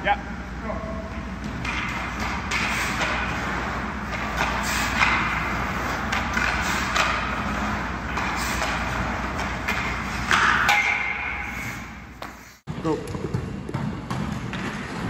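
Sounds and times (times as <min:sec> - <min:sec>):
steady low hum: 0:00.0 - 0:15.0
skate blades scraping on ice: 0:02.0 - 0:10.6
hockey stick clicking puck: 0:04.1 - 0:11.3.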